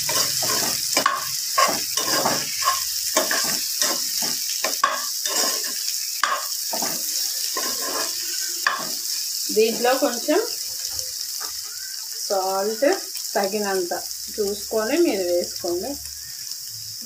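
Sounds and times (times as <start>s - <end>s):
steel spoon scraping pan: 0.0s - 9.2s
vegetables sizzling in oil: 0.0s - 17.0s
spoon knocking on pan: 0.1s - 5.5s, 6.2s - 7.0s, 8.6s - 9.0s.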